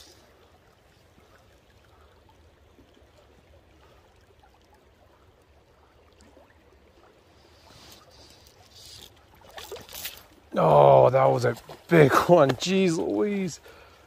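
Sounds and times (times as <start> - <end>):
faint flowing river water: 0.0 - 14.0
faint small ticks: 7.6 - 10.3.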